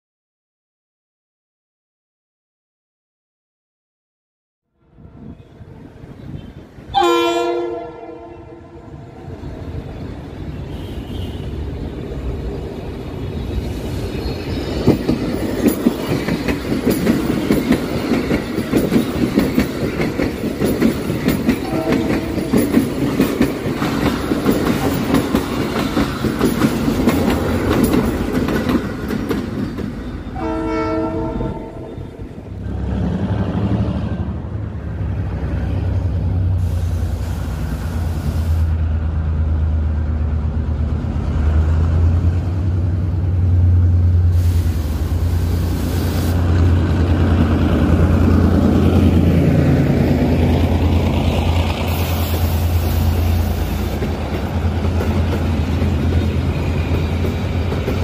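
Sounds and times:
train horn: 4.7 - 9.7, 10.6 - 11.6, 21.6 - 22.6, 30.3 - 32.2
train wheels clattering on rails: 14.2 - 30.4, 44.3 - 58.0.

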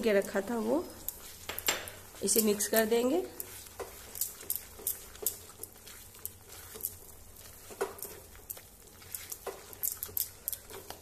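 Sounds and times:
spatula stirring sticky food: 0.0 - 11.0.

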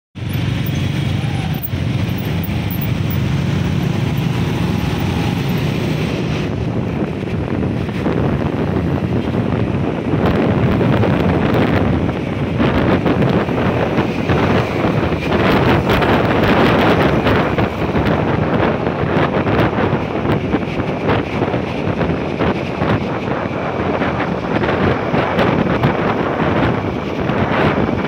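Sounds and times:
scooter and motorcycle engines: 0.2 - 20.4
wind rushing over microphone: 0.2 - 28.0.

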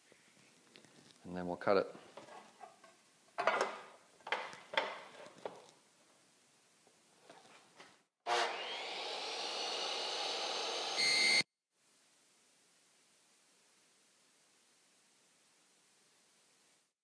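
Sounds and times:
miter saw motor whine: 8.3 - 11.4.

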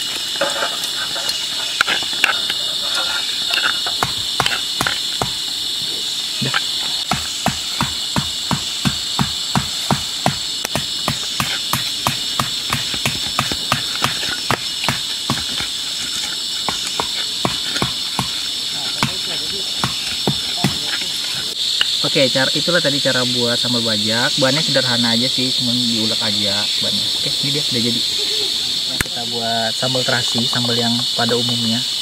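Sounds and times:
high insect drone: 0.0 - 32.0
pestle pounding in wooden mortar: 3.5 - 5.4, 6.4 - 21.5.

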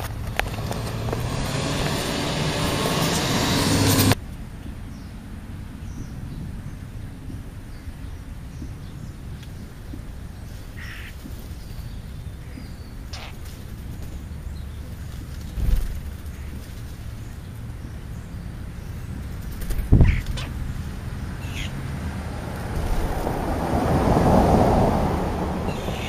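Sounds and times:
vehicle approaching on road: 0.0 - 26.0
faint short bird calls: 12.5 - 13.6.

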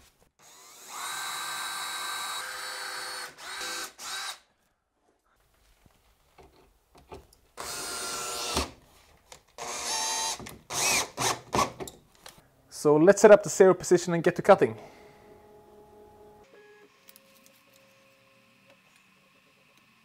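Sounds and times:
cordless drill motor whining: 0.4 - 4.4, 7.6 - 8.7, 9.6 - 11.3.

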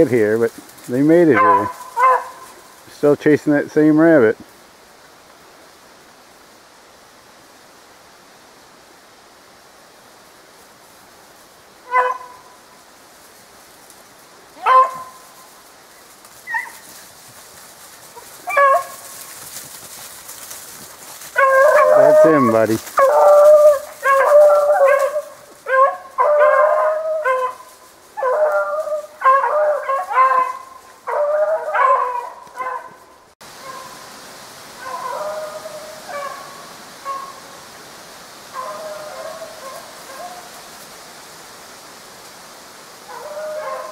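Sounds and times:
faint background hiss: 0.0 - 31.1, 32.4 - 43.9
hounds baying: 0.9 - 2.7, 11.9 - 12.5, 14.6 - 15.4, 16.4 - 17.0, 18.0 - 34.0, 34.8 - 37.4, 38.5 - 40.6, 43.1 - 43.9.

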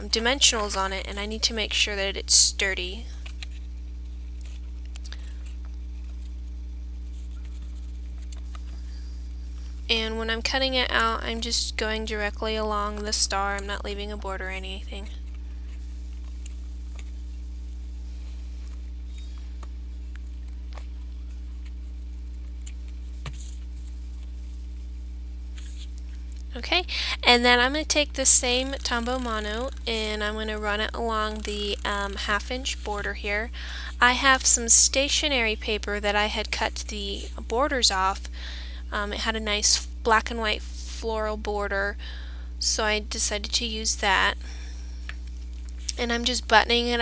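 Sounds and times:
low electrical hum: 0.0 - 47.0
scissors snipping paper: 28.4 - 30.3.

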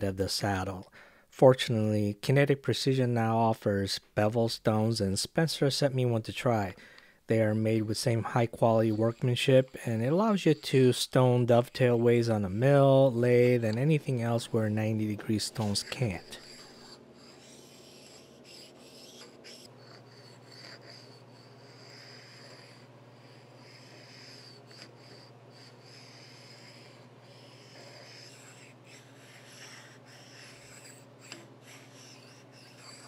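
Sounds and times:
steady low hum: 4.0 - 33.0
soft rubbing strokes: 11.8 - 20.2.

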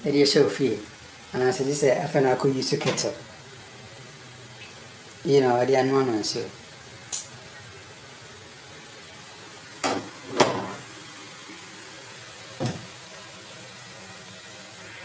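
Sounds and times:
closet doors knocking shut: 12.6 - 12.9.

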